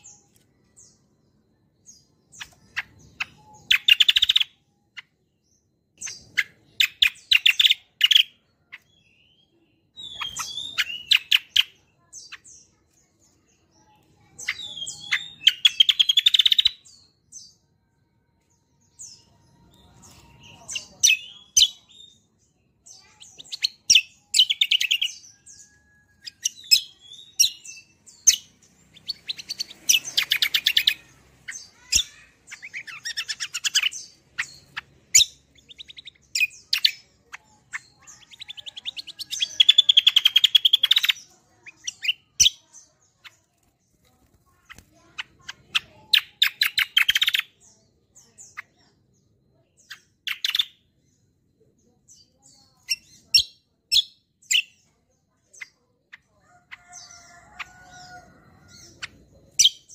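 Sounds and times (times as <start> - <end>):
bird chirps and rattling trills: 22.8 - 47.4.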